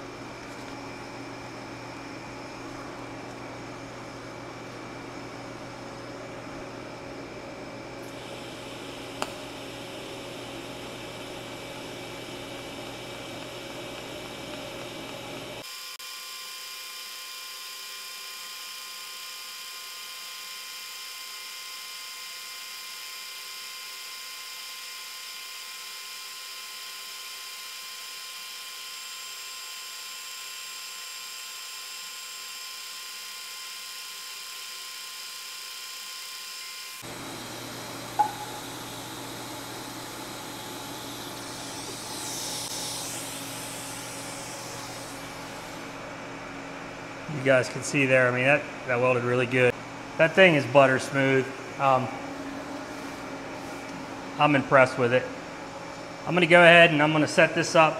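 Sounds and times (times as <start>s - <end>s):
welding arc: 8.0s - 46.0s
thin high whine: 36.4s - 55.4s
sharp click: 38.2s - 38.6s.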